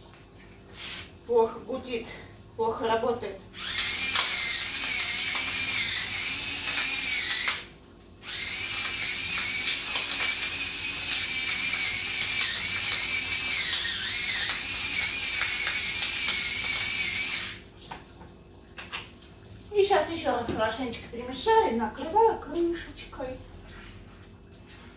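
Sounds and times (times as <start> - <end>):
electric spice grinder whirring: 3.6 - 17.6.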